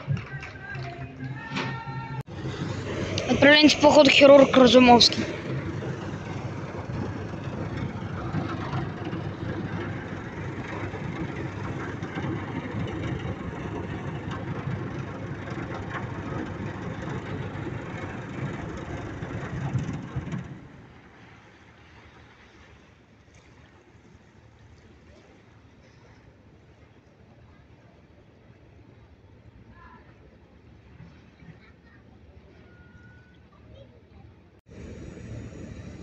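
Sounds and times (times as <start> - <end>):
ship diesel engines rumbling: 0.4 - 21.5, 34.7 - 36.0
water churning: 2.3 - 26.8.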